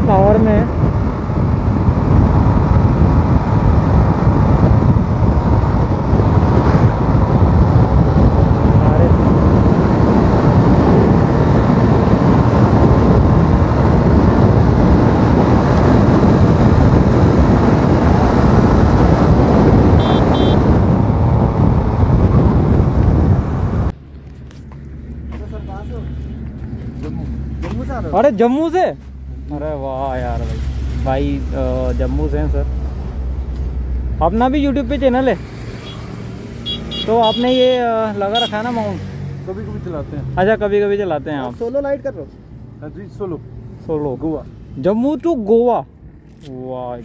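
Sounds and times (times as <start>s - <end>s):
wind rush over microphone: 0.0s - 24.0s
short high beeps: 20.0s - 20.6s.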